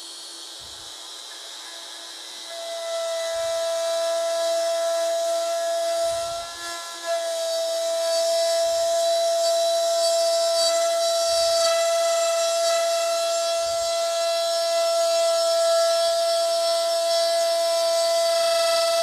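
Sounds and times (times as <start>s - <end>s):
router cutting wood: 0.0s - 19.0s.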